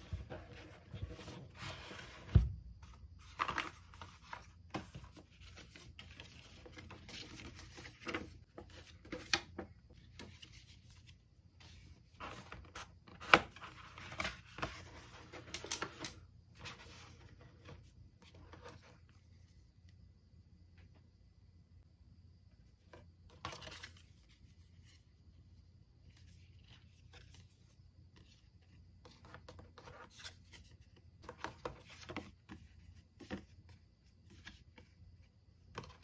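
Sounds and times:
cardboard sliding and rustling: 0:00.0 - 0:19.1.

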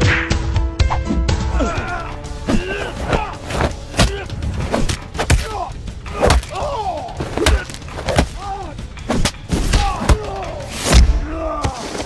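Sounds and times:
shouts and grunts of effort: 0:01.4 - 0:04.6, 0:05.2 - 0:08.9, 0:09.6 - 0:12.0
punch and kick impacts: 0:02.5 - 0:08.4.

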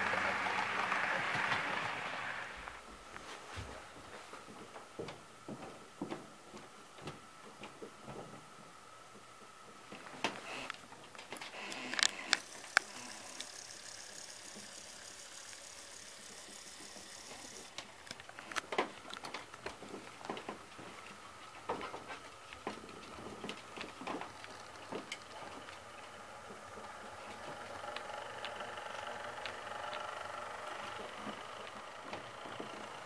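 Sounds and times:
model train wheels clicking: 0:00.0 - 0:02.8, 0:10.0 - 0:33.0.

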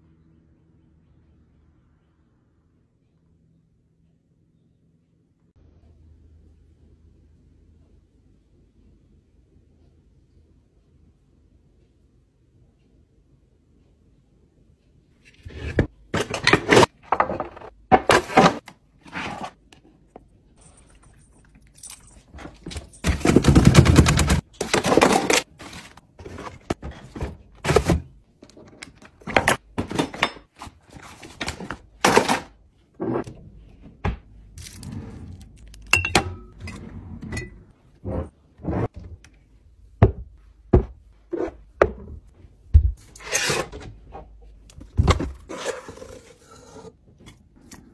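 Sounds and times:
kitchen items knocking and scraping: 0:15.3 - 0:19.6, 0:21.8 - 0:39.2, 0:39.9 - 0:47.9.

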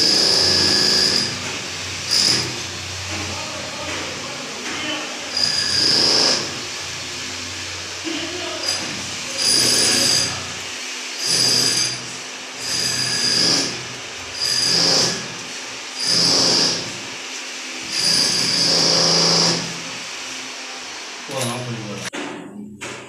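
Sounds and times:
power tool whining bursts: 0:00.0 - 0:03.1, 0:05.3 - 0:20.0.

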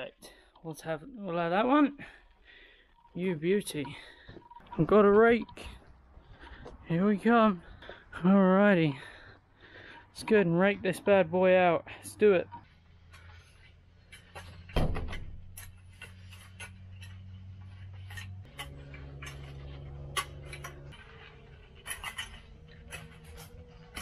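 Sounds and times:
thump: 0:14.8 - 0:15.4
rake tines scraping soil: 0:15.6 - 0:24.0.

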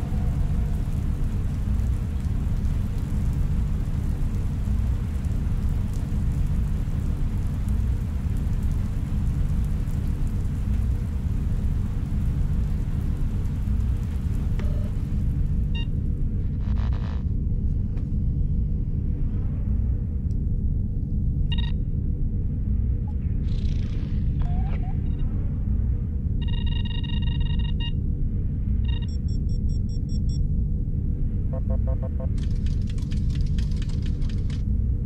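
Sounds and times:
rain hiss and patter: 0:00.0 - 0:16.3, 0:32.3 - 0:34.7
low city drone: 0:00.0 - 0:35.0.

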